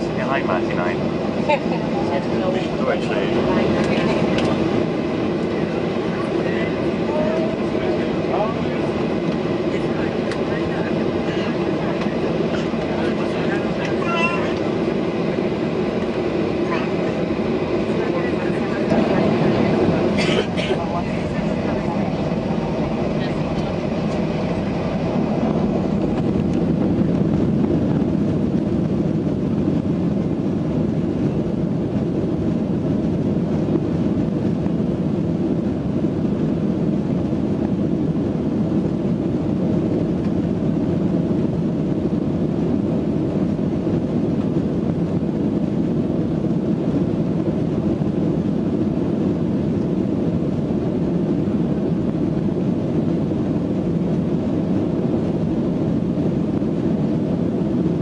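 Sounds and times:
jet engine rumble inside cabin: 0.0 - 58.0.

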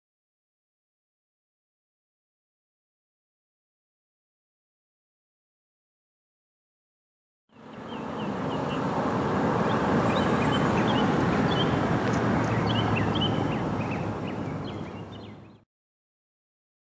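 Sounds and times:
small birds chirping: 7.5 - 15.6.

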